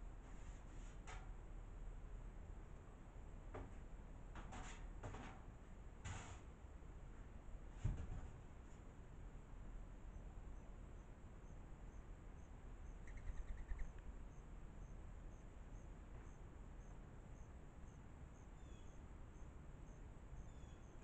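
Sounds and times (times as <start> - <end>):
low outdoor rumble: 0.0 - 21.0
faint bird chirps: 10.0 - 21.0
cricket chirping: 10.1 - 21.0.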